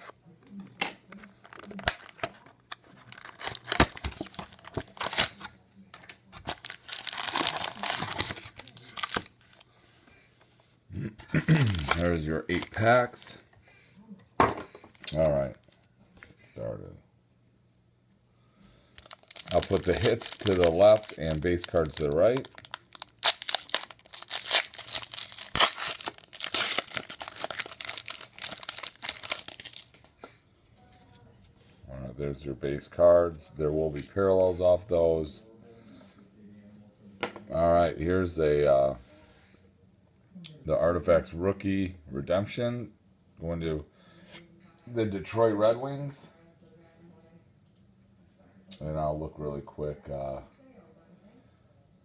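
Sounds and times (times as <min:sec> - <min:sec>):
foil packs crinkling and tearing: 0:01.4 - 0:02.4, 0:03.0 - 0:05.5, 0:06.4 - 0:09.7, 0:11.5 - 0:12.9, 0:19.0 - 0:30.1.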